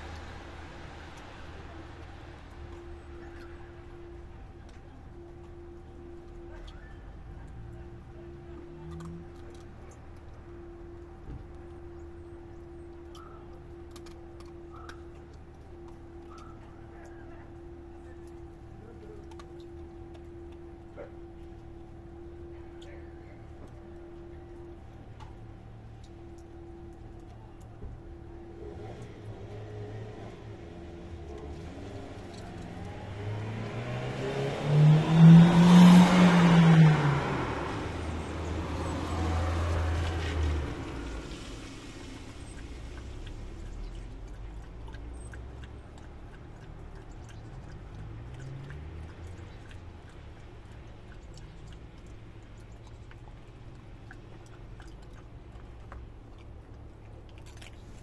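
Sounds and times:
car passing on wet road: 0:00.0 - 0:06.5, 0:28.0 - 0:56.3
dog chewing bones: 0:42.4 - 0:58.0.

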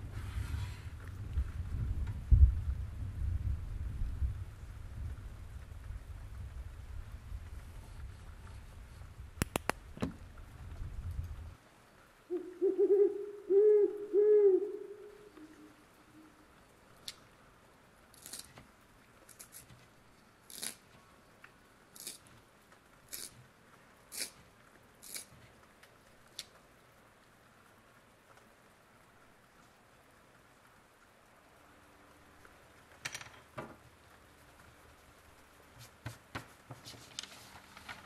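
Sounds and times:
crisp scratchy ticks: 0:09.4 - 0:09.8, 0:20.5 - 0:26.7
owl hooting: 0:12.3 - 0:16.4.

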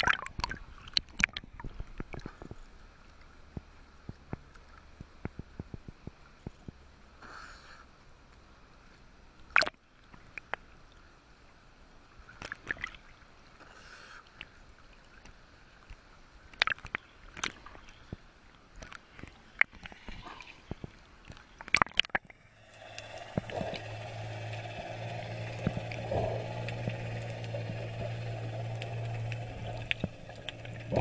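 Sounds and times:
water lapping and splashing: 0:00.0 - 0:07.2, 0:12.0 - 0:31.0
muffled underwater wash: 0:00.0 - 0:31.0
low hum: 0:22.2 - 0:31.0.

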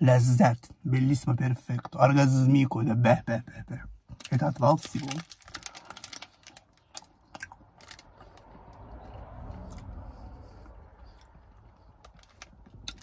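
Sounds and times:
chewing and mouth sounds: 0:04.1 - 0:13.0
foil wrapper clicks: 0:04.7 - 0:07.1
low rumble: 0:07.7 - 0:13.0.

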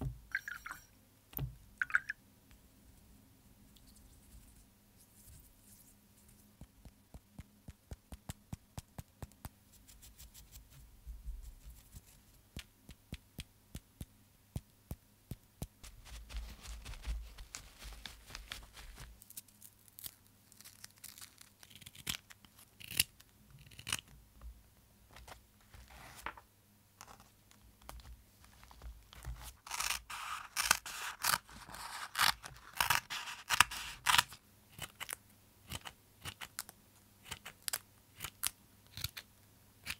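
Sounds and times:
scissors snipping cork: 0:29.7 - 0:36.7, 0:37.3 - 0:39.9.

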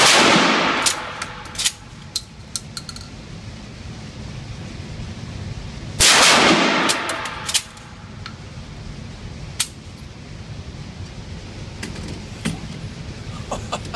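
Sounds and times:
shotgun blast echoing indoors: 0:00.0 - 0:01.9, 0:06.0 - 0:07.8.

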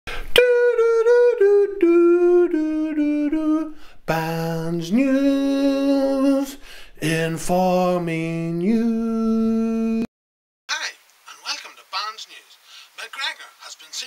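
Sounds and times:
person singing unaccompanied: 0:00.1 - 0:10.1.

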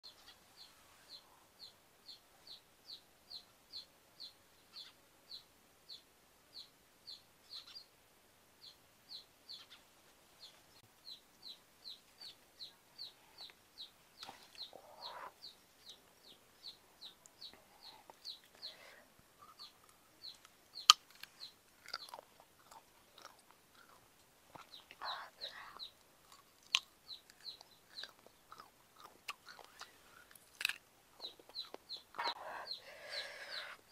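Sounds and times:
bird chirping: 0:00.0 - 0:08.0, 0:08.6 - 0:30.6, 0:31.2 - 0:33.9
chewing and biting: 0:20.8 - 0:24.0, 0:26.2 - 0:31.8.

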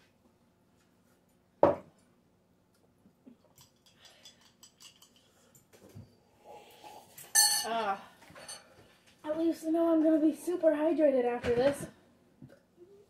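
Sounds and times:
knock on table: 0:01.6 - 0:01.9
tableware clicks and clinks: 0:03.5 - 0:05.9, 0:07.2 - 0:08.7.

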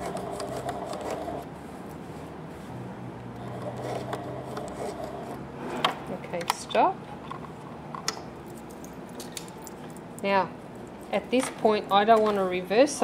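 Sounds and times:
sewing machine stitching: 0:00.0 - 0:01.4.

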